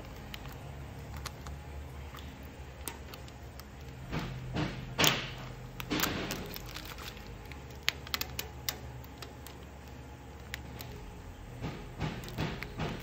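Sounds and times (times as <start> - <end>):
vinyl stencil crinkling: 5.4 - 13.0.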